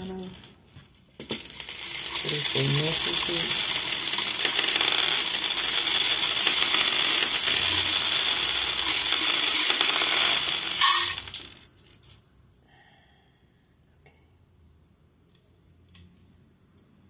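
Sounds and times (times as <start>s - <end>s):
dice rattling when shaken: 1.2s - 12.1s
dice clattering onto board: 1.2s - 12.2s.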